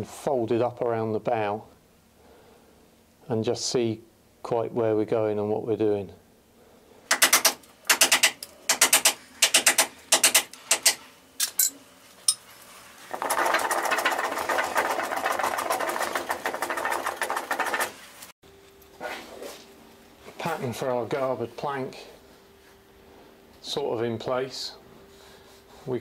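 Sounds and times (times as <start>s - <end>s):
hand tool shaving wood: 13.1s - 18.0s.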